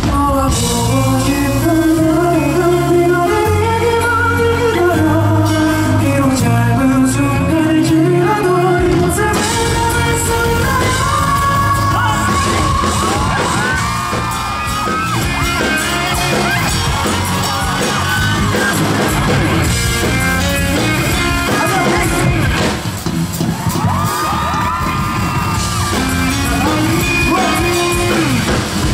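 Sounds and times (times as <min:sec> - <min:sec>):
live band music through pa: 0:00.0 - 0:28.9
fans screaming and yelling: 0:09.3 - 0:28.9.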